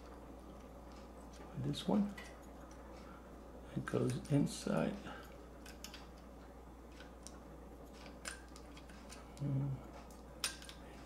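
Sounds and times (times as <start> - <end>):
small parts clicking: 5.2 - 6.2, 6.9 - 10.8
low voice hum: 9.2 - 10.1.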